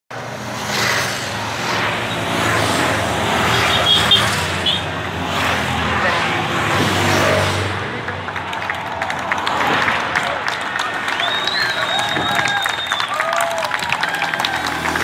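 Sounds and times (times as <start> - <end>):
motorcycles riding past: 14.0 - 15.0.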